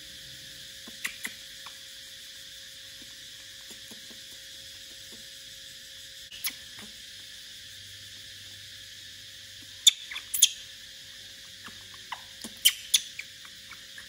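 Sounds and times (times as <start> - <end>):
monkey sucking on bottle teat: 3.0 - 5.2.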